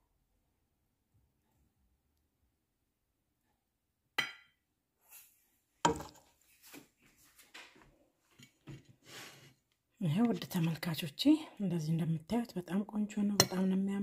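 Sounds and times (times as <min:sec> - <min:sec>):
metal spoon clinking on pan: 0:13.3 - 0:13.8.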